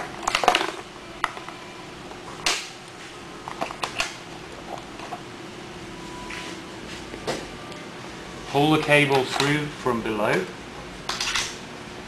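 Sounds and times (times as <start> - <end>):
plastic parts clicking and rattling: 0.1 - 1.5.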